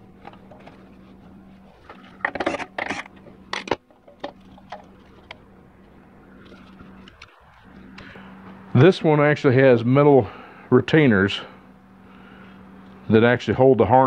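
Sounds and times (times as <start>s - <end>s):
steady low hum: 0.0s - 14.0s
metal parts clattering and scraping: 1.7s - 5.4s.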